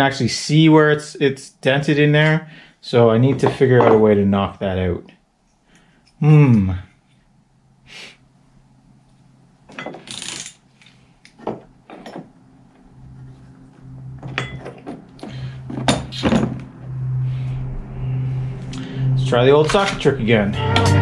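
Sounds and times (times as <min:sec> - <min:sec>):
low steady hum: 0:00.0 - 0:21.0
metal clinks and knocks: 0:11.4 - 0:12.4, 0:14.1 - 0:16.7.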